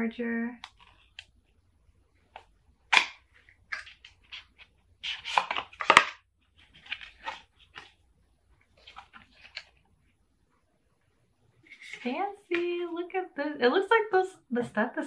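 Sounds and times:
packaging rustling and scraping: 3.4 - 8.0, 8.7 - 9.8.

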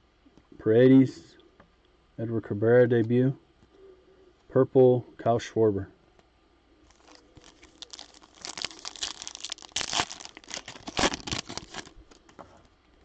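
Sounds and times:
foil wrapper tearing and crinkling: 6.9 - 12.2.

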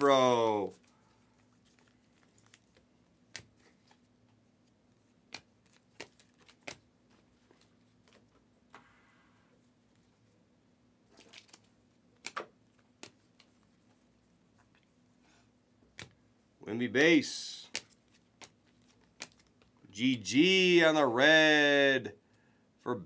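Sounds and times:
trading cards clicking and tapping: 5.3 - 6.8, 17.5 - 19.7.

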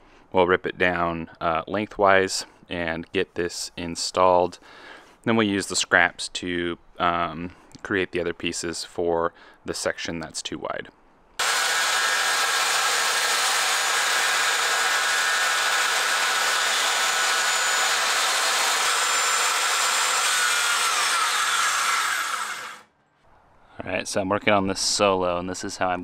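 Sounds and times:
circular saw cutting wood: 11.4 - 22.9
saw motor winding down: 11.4 - 22.9.

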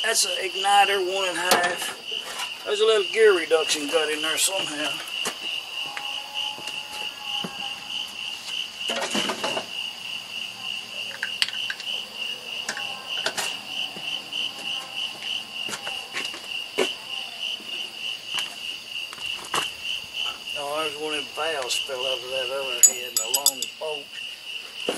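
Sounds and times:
night insects chirping: 0.0 - 24.9
clinks and clatter: 22.8 - 23.9.

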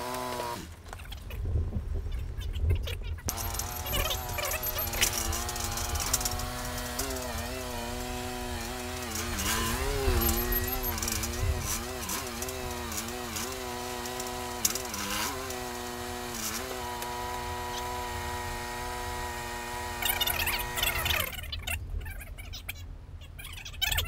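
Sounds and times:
forklift engine hum: 3.3 - 21.4.

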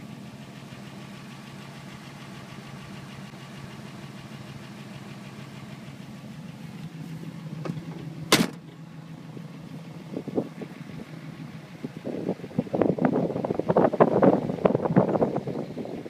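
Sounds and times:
car engine idling: 0.0 - 16.0
car door slamming: 7.6 - 8.8.

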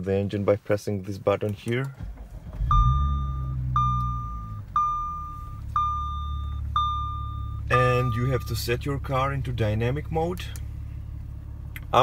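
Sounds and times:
car engine starting and idling: 1.4 - 12.0
dashboard warning chime beeps: 2.6 - 8.8.

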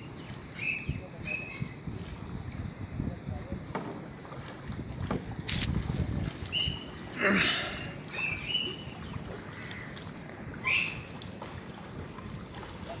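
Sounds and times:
wind on microphone: 0.0 - 9.6
high chirping bird calls: 0.5 - 1.8, 8.1 - 9.0, 10.6 - 11.1.

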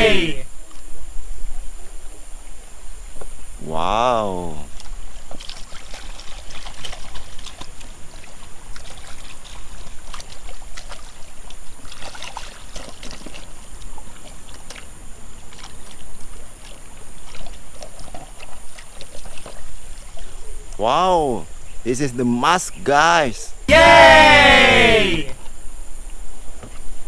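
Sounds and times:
water splashing and sloshing: 4.1 - 20.8.

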